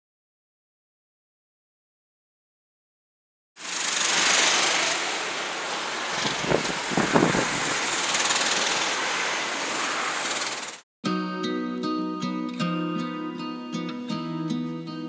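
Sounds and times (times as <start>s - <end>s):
go-kart engines buzzing: 3.6s - 10.8s.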